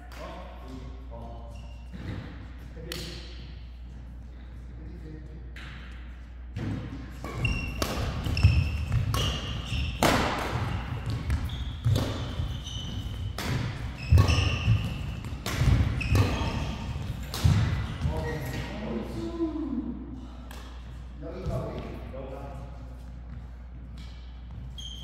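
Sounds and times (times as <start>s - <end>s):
shoe squeaks: 1.2s - 2.3s, 7.2s - 17.2s, 24.2s - 25.0s
racket hitting shuttlecock: 6.6s - 18.6s.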